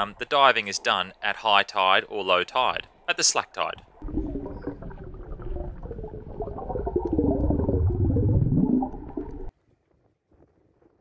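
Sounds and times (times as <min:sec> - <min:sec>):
muffled underwater sloshing and bubbling: 0:03.9 - 0:09.5.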